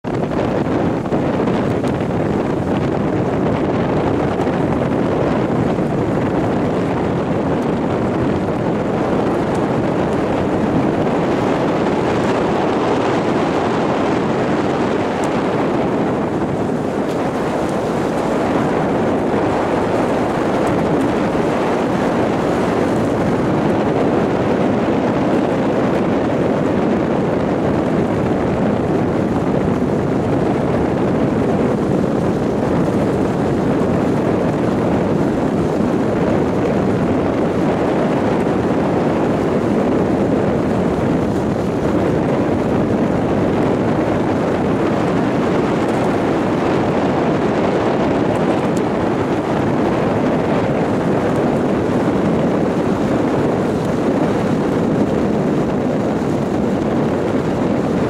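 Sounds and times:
motor boat rushing: 0.0 - 58.0
wind on microphone: 0.0 - 58.0.

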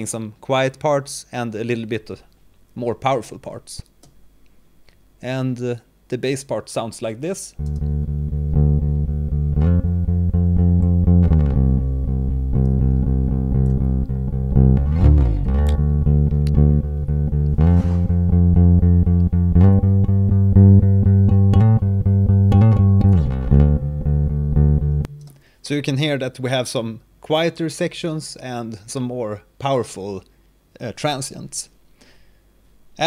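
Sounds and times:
electric bass guitar: 7.6 - 25.4.

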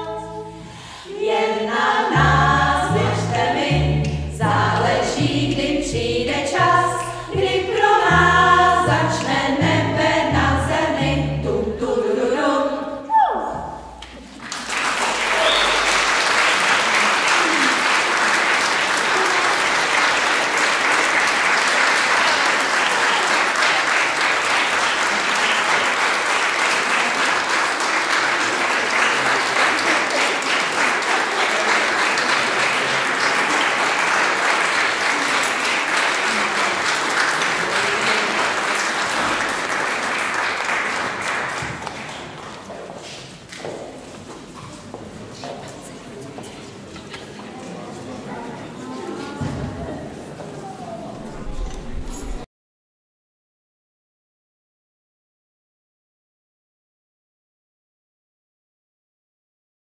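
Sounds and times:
audience applauding: 14.1 - 42.8.

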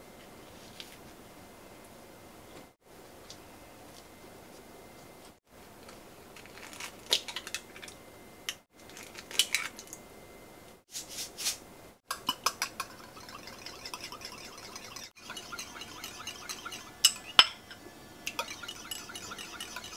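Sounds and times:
eggs cracked against glass bowl: 12.1 - 17.7
whisk clinking against glass: 12.1 - 19.9.

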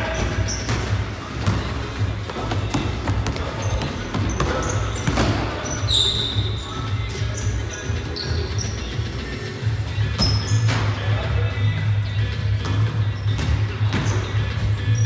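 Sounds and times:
sneakers squeaking on hardwood: 0.0 - 11.1, 12.4 - 15.0
basketball bouncing: 0.2 - 5.7.

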